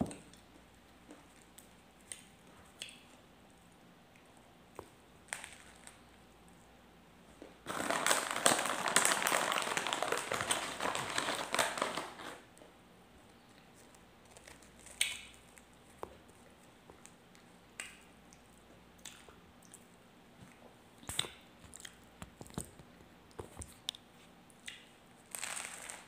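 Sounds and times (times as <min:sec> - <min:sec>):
crusty bread being chewed: 0:13.2 - 0:26.0.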